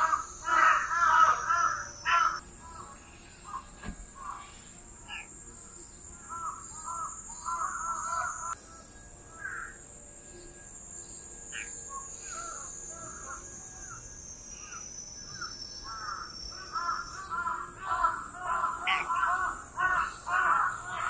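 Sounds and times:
crows cawing: 0.0 - 5.3, 6.3 - 8.6, 9.3 - 9.8, 15.4 - 21.0
insects droning: 0.0 - 21.0.

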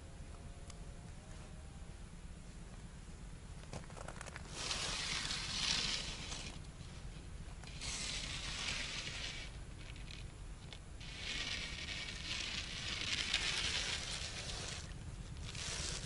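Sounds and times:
rustling and scraping in snowy brush: 3.8 - 10.3, 11.0 - 16.0.

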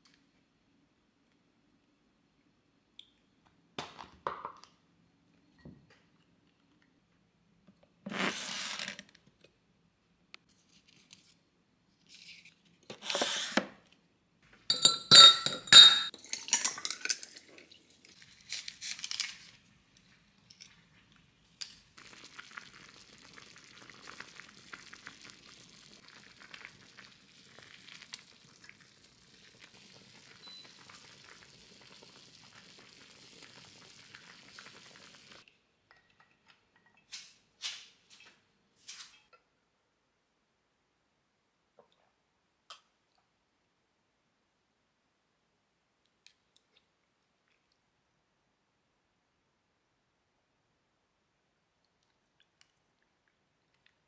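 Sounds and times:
dishes and utensils clinking: 14.7 - 17.6
food sizzling in a pan: 22.0 - 35.4.

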